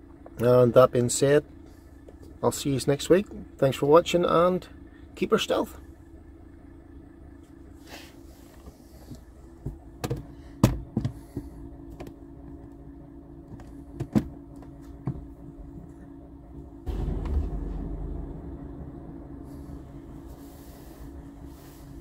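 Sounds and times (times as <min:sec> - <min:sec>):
diesel engine idling: 0:00.0 - 0:22.0
handling knocks and clicks: 0:13.4 - 0:15.4.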